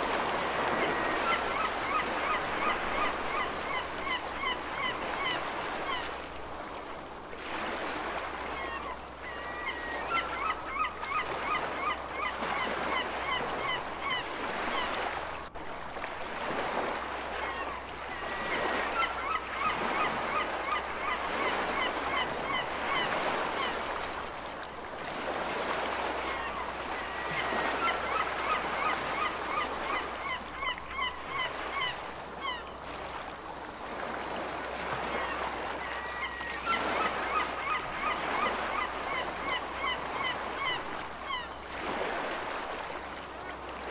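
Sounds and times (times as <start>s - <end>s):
ocean surf: 0.0s - 43.9s
gulls calling: 0.1s - 6.2s, 8.0s - 15.2s, 17.3s - 24.1s, 25.7s - 32.8s, 34.9s - 42.4s.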